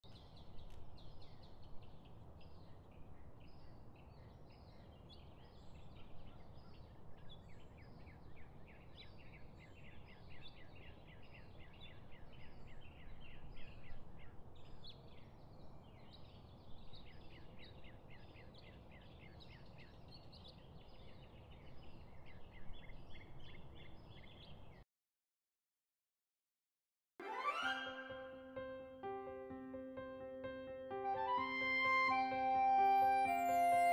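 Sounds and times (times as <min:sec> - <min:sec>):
small birds chirping: 0:00.0 - 0:24.8.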